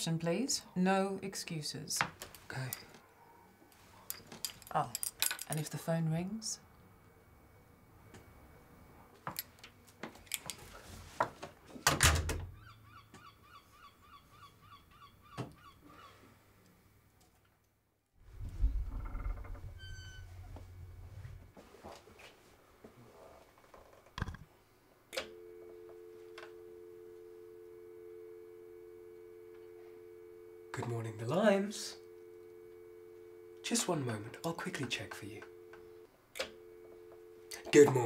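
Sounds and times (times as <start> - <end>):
door shutting with thud: 11.8 - 12.5
two-tone dial tone: 25.2 - 38.0.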